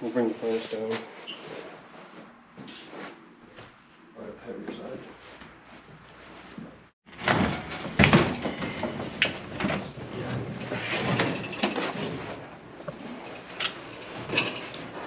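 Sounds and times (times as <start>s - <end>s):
sheet metal clanking and scraping: 7.1s - 15.0s.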